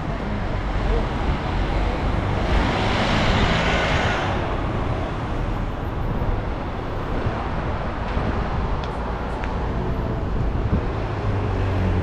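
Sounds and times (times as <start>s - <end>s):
low rumble of road traffic: 0.0s - 12.0s.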